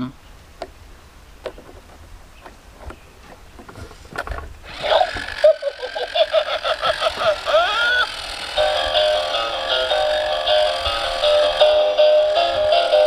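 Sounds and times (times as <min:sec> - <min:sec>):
toy speaker electronic sound effect: 0:04.7 - 0:09.2.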